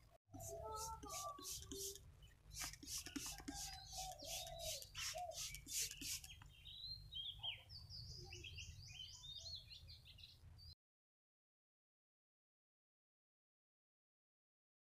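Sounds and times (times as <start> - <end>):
small birds chirping: 0.4 - 10.8
high whistled bird notes: 0.6 - 6.4.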